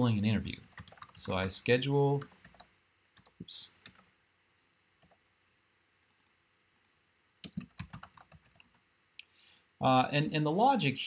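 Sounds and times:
computer keyboard typing: 0.7 - 1.6, 2.2 - 4.1, 6.0 - 8.8.

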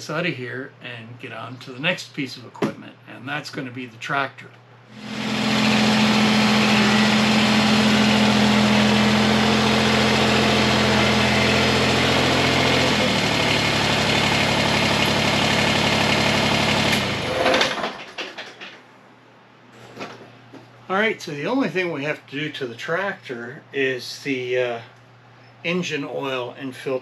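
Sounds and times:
tractor diesel engine running: 4.9 - 18.1.

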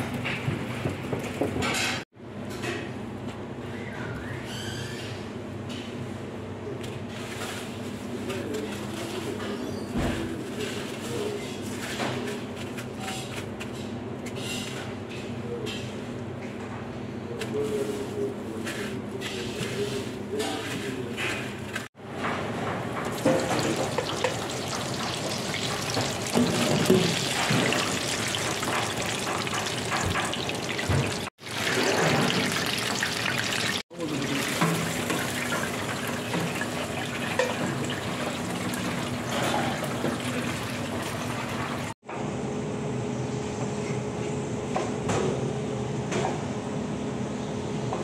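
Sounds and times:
hot oil sizzling and crackling: 23.0 - 42.0.

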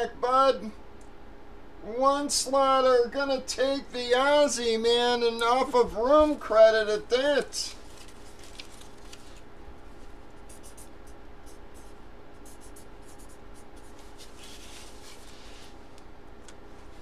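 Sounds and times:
steady low hum: 0.0 - 17.0
marker writing on card: 10.4 - 15.3.

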